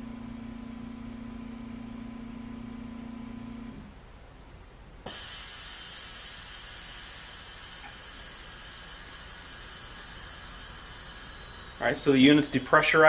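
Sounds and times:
steady machine hum: 0.0 - 13.0
venting air hissing: 5.0 - 13.0
high whistle falling in pitch: 5.1 - 13.0.

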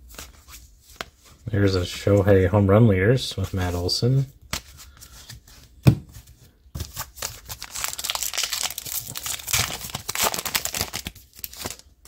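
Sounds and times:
wrapper being torn and crinkled: 7.1 - 12.0.

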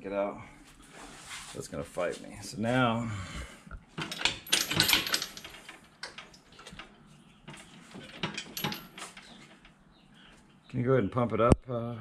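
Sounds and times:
metal chain clinking and rattling: 4.0 - 9.7.

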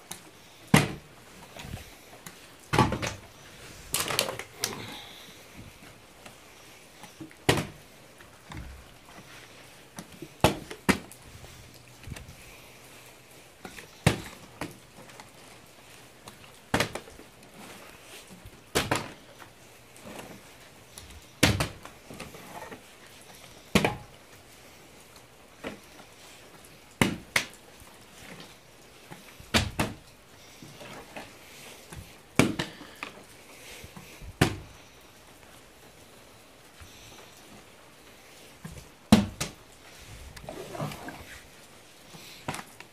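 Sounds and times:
plastic bottle thudding on floor: 2.7 - 3.2, 7.5 - 7.8.

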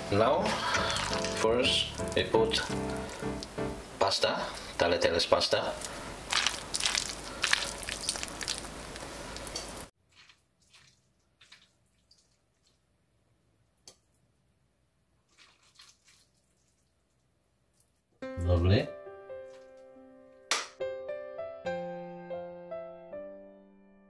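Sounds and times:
wet pasta dripping and squelching: 0.4 - 3.6, 5.5 - 14.4, 15.2 - 18.1.

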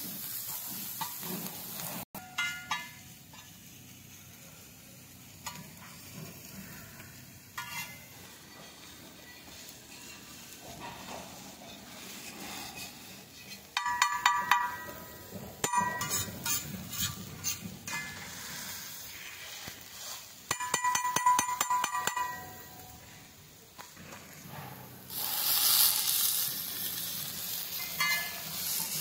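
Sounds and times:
spoon clinking in metal pot: 2.2 - 3.0, 13.8 - 15.0, 20.5 - 22.8, 27.8 - 28.4.

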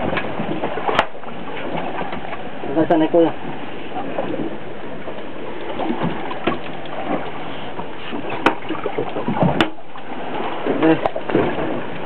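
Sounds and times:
water rushing around boat: 0.0 - 12.0.

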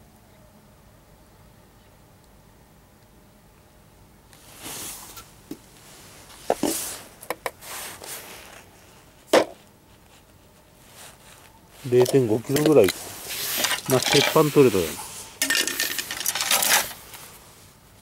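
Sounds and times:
rustling: 4.3 - 18.0
small motors set down on dirt: 11.9 - 17.1.

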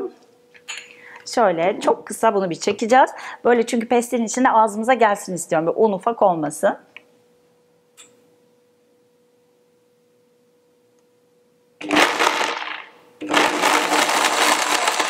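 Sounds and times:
faint hum: 0.0 - 13.7
blender chopping nuts: 11.8 - 15.0.

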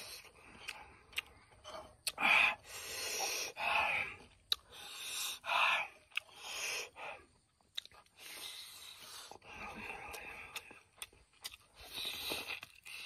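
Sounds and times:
man breathing noisily while eating: 0.0 - 13.0.

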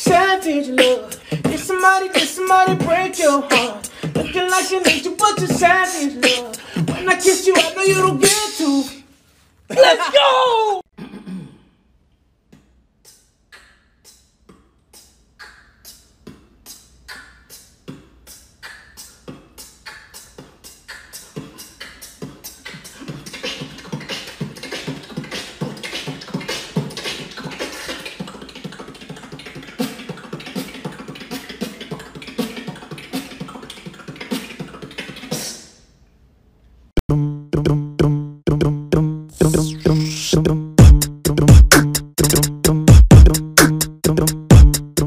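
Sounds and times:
person beatboxing: 0.0 - 8.9, 12.5 - 35.8, 37.0 - 45.0
pitched vocal line: 0.0 - 9.1, 9.7 - 10.9, 37.0 - 45.0.

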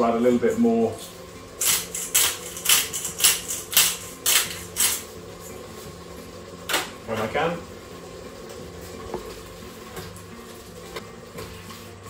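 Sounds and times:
pepper mill grinding: 1.6 - 5.0.

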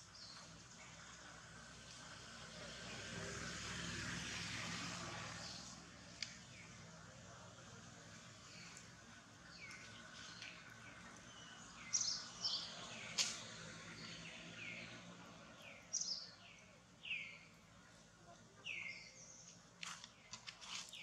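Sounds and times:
birds chirping: 8.1 - 21.0.

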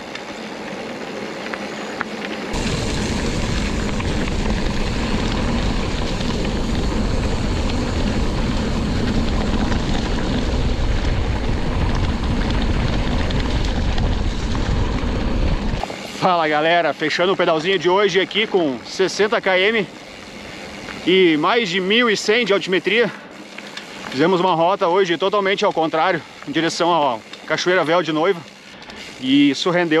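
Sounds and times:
deep rumble: 2.5 - 15.9
wind rushing over microphone: 2.5 - 16.1.

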